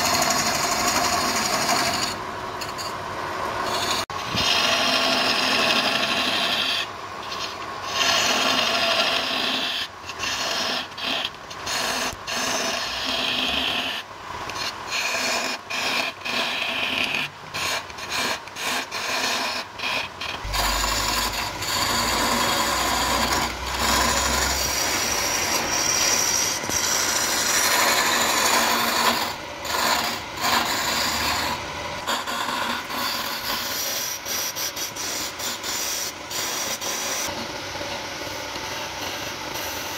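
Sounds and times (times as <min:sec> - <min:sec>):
lathe chisel scraping wood: 0:00.0 - 0:03.0, 0:03.6 - 0:37.4
low hum: 0:20.4 - 0:26.0.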